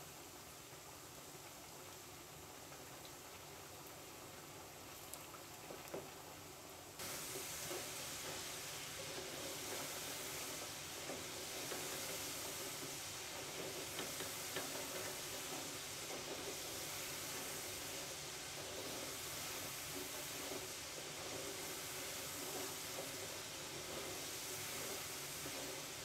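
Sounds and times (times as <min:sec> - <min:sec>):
potatoes sizzling in hot oil: 0:00.0 - 0:26.0.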